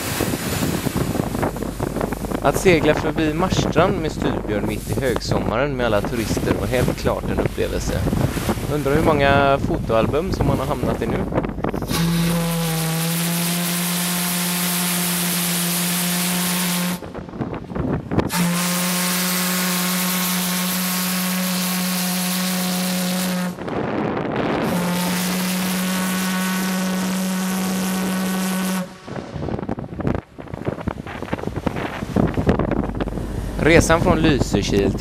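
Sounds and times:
steam whistle blasts: 11.8 - 17.0, 18.3 - 23.6, 24.6 - 29.1.

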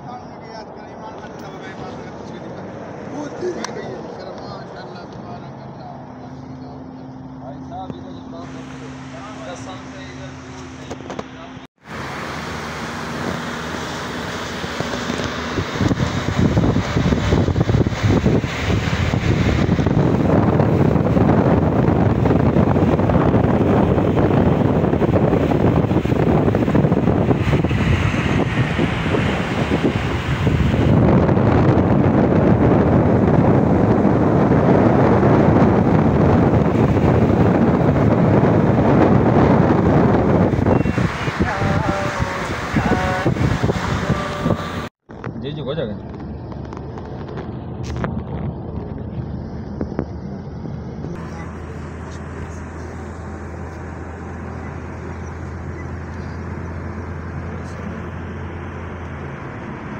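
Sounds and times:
vehicle road noise: 0.0 - 59.9
wind buffeting microphone: 11.9 - 59.9.

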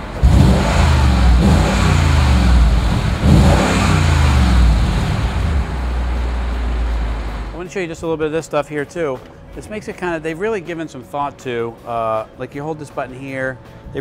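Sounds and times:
car engine revving and idling: 0.0 - 7.6.

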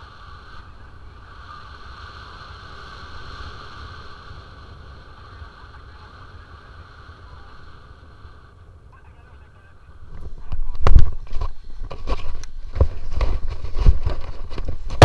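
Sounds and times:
wind buffeting microphone: 10.0 - 15.0.

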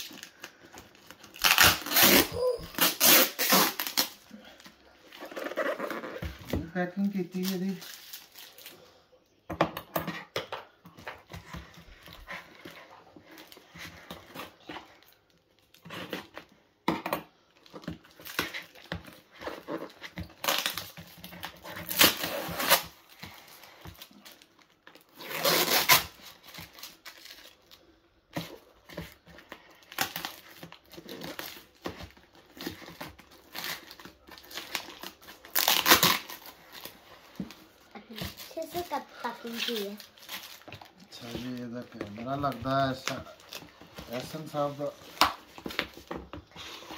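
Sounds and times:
packing tape ripping: 0.0 - 4.2, 18.0 - 27.8, 29.7 - 37.0
tape crinkling: 0.0 - 8.8, 17.4 - 46.9.

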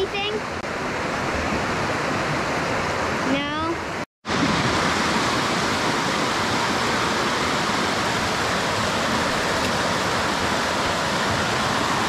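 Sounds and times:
fast river water rushing: 0.0 - 12.0.

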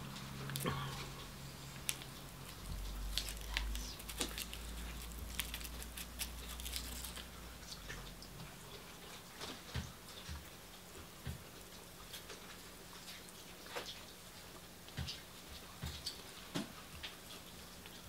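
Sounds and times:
crispy fried chicken crunching: 0.4 - 8.1.

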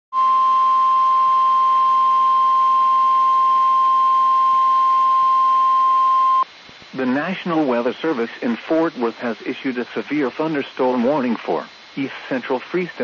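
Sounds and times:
steady high alarm tone: 0.2 - 6.4
faint radio hiss: 5.9 - 13.0.

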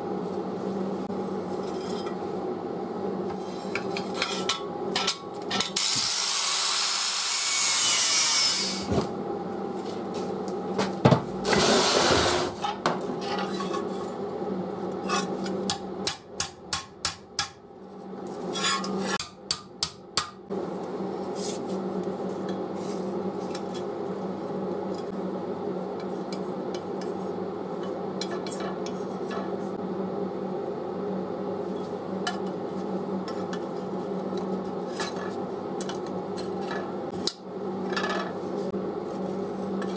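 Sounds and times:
angle grinder grinding steel: 5.8 - 8.9
scraping and rubbing on metal: 18.3 - 19.2.

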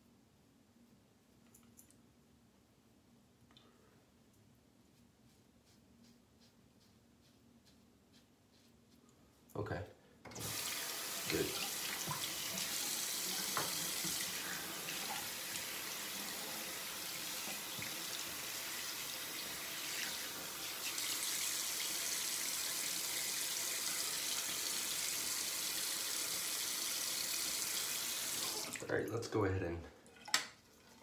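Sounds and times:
tap water splashing into sink: 10.3 - 15.7.

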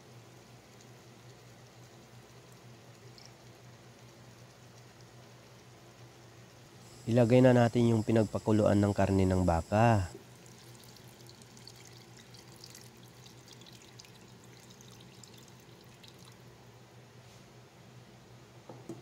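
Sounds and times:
broth pouring into pot: 9.5 - 16.7.

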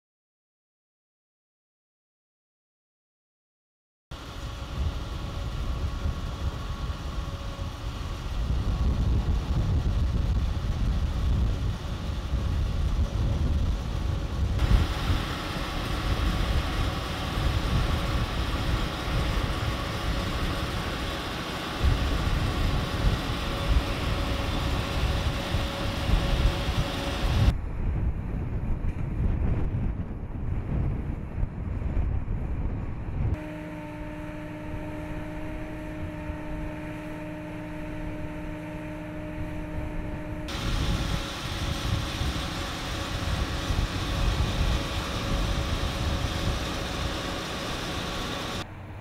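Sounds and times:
diesel engine rumbling: 4.1 - 28.6, 29.9 - 49.0
faint steady whine: 4.2 - 27.6, 33.3 - 49.0.

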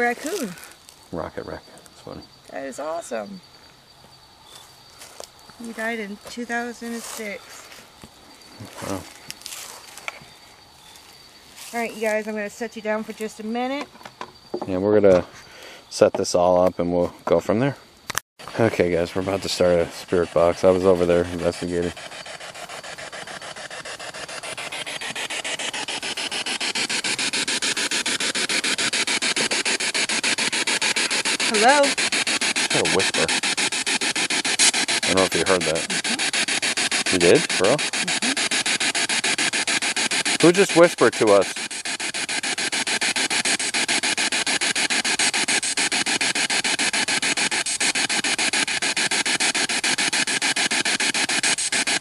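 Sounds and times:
pulsing radio static: 8.6 - 9.2, 18.5 - 52.0.

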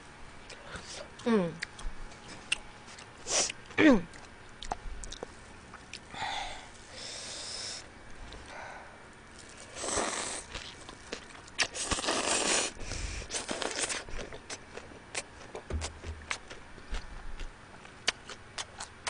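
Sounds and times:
person slurping food: 9.7 - 10.5, 11.8 - 14.0
wet chewing clicks: 13.4 - 19.0.

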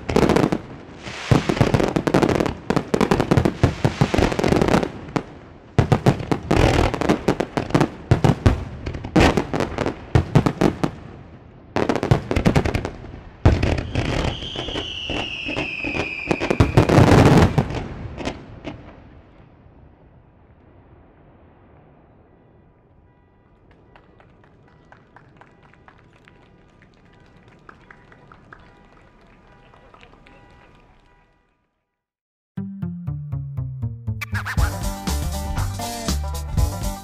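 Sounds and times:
fireworks bangs and crackling: 0.0 - 31.3
high firework whistle: 13.8 - 17.0.

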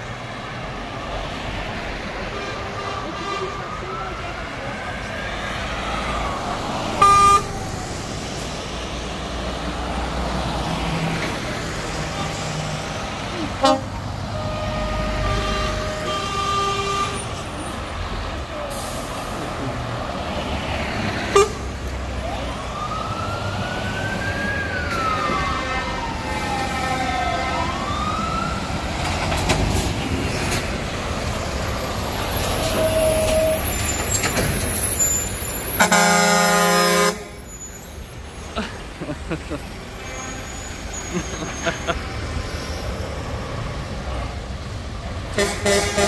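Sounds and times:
trucks with diesel engines passing: 0.0 - 46.0
air horn blast: 7.0 - 7.5, 13.6 - 17.3, 35.8 - 37.4, 45.4 - 46.0
horn toots: 7.0 - 7.5, 13.6 - 17.4, 35.8 - 37.4, 45.4 - 46.0
siren wailing: 22.2 - 28.9.

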